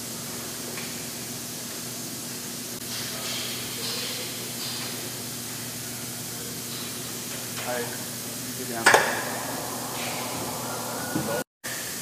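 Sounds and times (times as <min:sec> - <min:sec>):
steady background hiss: 0:01.7 - 0:12.0
faint low hum: 0:08.6 - 0:11.4.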